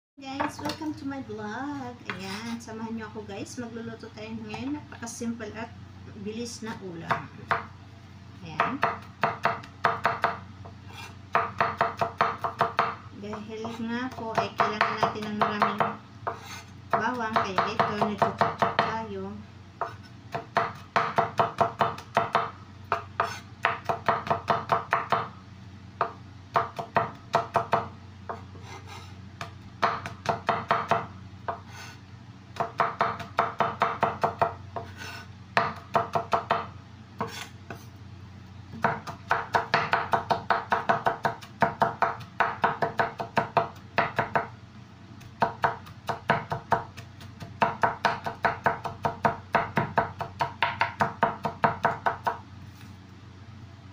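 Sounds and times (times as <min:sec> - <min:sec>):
knife chopping on wooden board: 0:08.6 - 0:19.0, 0:19.8 - 0:25.3, 0:26.0 - 0:31.9, 0:32.6 - 0:37.8, 0:38.8 - 0:44.5, 0:45.2 - 0:52.4.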